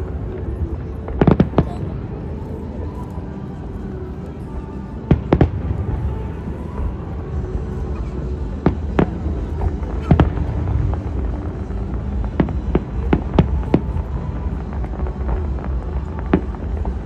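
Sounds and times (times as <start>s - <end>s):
steady low rumble: 0.0s - 17.0s
fireworks bursting bangs: 0.6s - 2.0s, 8.1s - 17.0s.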